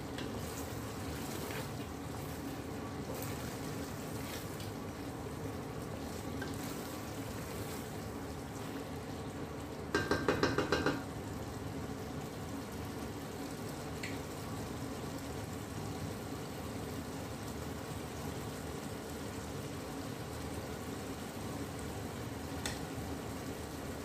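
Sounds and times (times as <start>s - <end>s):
spatula stirring: 0.0s - 8.1s
food sizzling in a pot: 0.0s - 24.0s.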